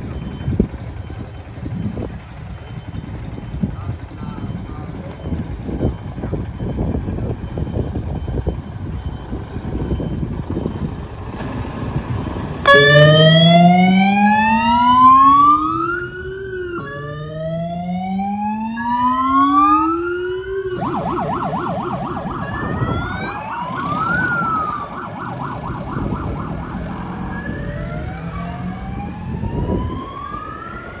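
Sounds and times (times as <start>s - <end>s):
electronic siren wailing: 12.6s - 31.0s.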